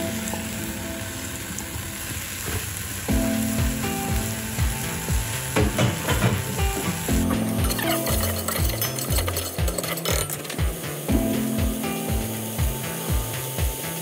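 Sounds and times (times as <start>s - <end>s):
food sizzling in a pot: 0.0s - 14.0s
background music with beat: 3.1s - 14.0s.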